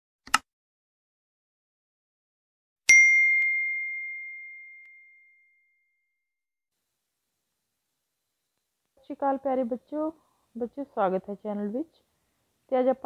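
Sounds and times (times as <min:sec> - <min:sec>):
notification bell ding: 0:02.9 - 0:05.9.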